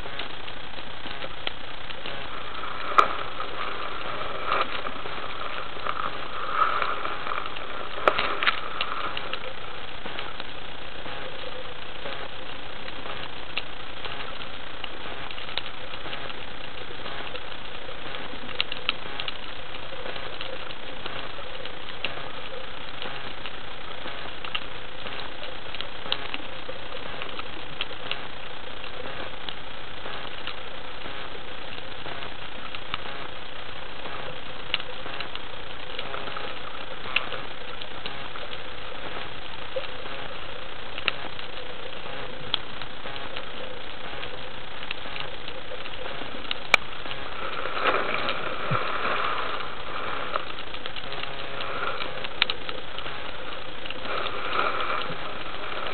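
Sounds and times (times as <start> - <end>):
faint steady hum: 0.0 - 55.9
sharp clicks and crackles: 0.0 - 55.9
underwater hiss: 1.7 - 11.5, 45.2 - 55.9.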